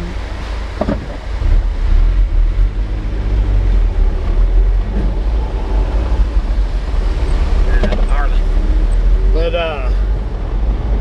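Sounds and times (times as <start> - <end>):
truck engine and road rumble: 0.0 - 11.0.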